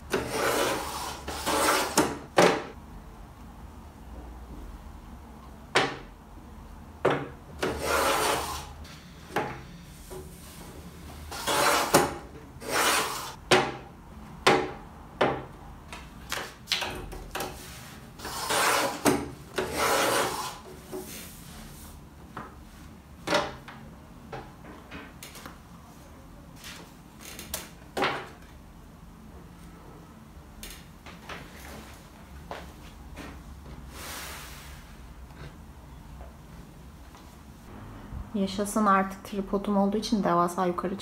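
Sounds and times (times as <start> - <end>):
paper trimmer blade scraping: 7.7 - 8.7, 11.3 - 12.0, 18.2 - 19.0, 19.6 - 20.6.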